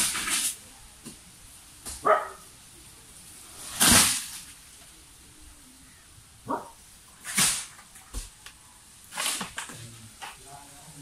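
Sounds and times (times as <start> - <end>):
dog barking: 2.0 - 2.5, 6.4 - 6.8.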